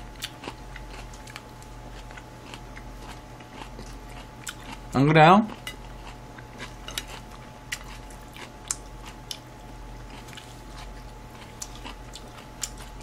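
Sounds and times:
faint electrical hum: 0.0s - 13.0s
person chewing: 0.0s - 13.0s.

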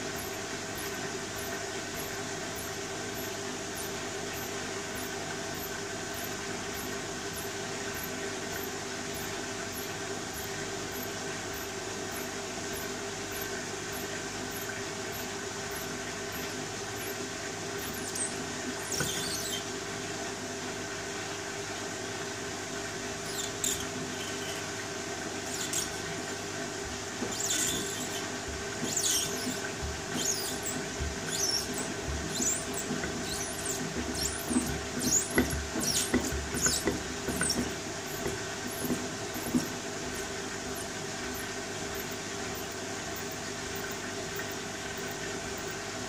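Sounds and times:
washing machine motor humming: 0.0s - 46.0s
rubber items squeaking: 17.8s - 19.7s, 23.2s - 24.7s, 25.5s - 26.1s, 27.2s - 44.5s.

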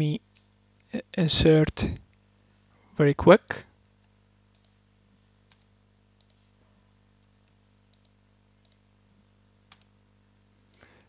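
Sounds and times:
faint electrical hum: 0.0s - 11.0s
faint keyboard keystrokes: 5.4s - 6.5s, 7.2s - 8.9s, 9.7s - 9.9s.

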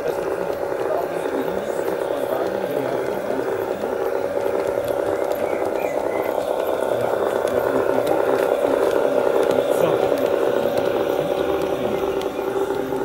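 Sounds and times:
model train motor humming: 0.0s - 13.0s
wheels rattling on rails: 0.0s - 13.0s.

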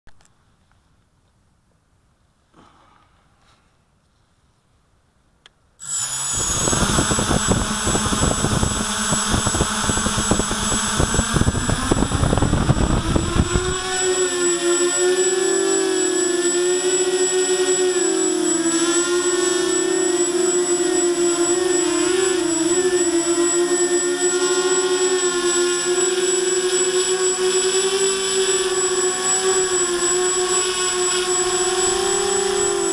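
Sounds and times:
high electronic whine: 5.8s - 32.9s
quadcopter propellers buzzing: 5.8s - 32.9s
prop wash buffeting rumble: 6.2s - 14.6s.

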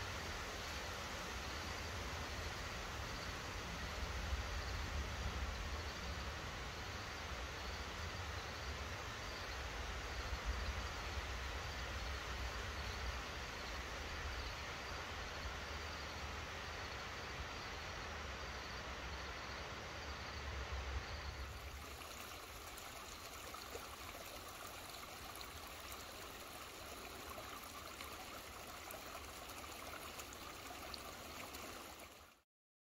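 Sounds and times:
creek water flowing over rocks: 21.1s - 32.4s.

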